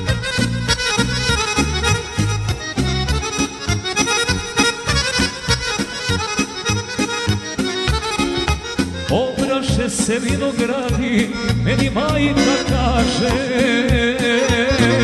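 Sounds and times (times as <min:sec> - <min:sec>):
accordion melody: 0:00.0 - 0:15.0
bass guitar: 0:00.0 - 0:15.0
drum machine beat: 0:07.8 - 0:09.2, 0:13.0 - 0:14.2.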